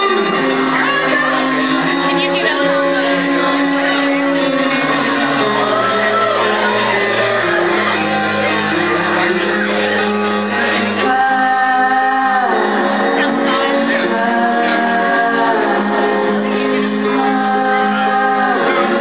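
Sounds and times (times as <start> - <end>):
live band playing: 0.0 - 19.0
audience shouting and whooping: 5.1 - 9.2.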